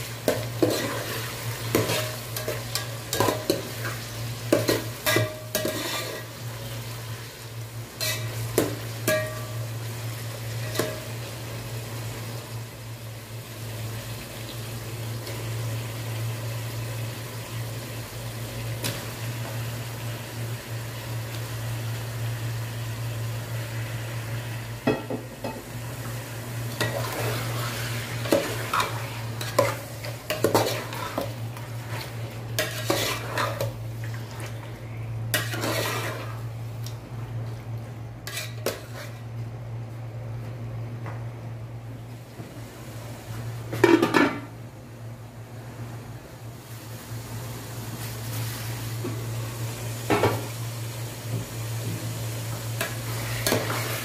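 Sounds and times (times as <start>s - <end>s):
onions sizzling in oil: 0.0s - 37.0s, 46.5s - 54.0s
metal spoon scraping a pot: 5.1s - 6.3s, 32.6s - 33.6s, 35.4s - 36.3s, 38.2s - 39.2s.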